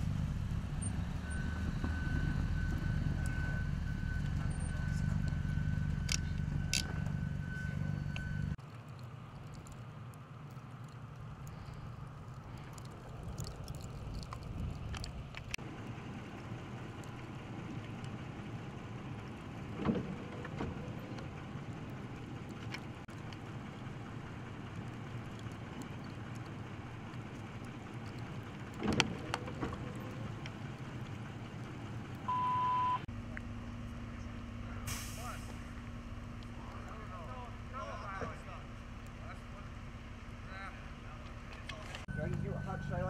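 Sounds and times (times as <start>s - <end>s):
vehicle engines idling: 0.0s - 43.0s.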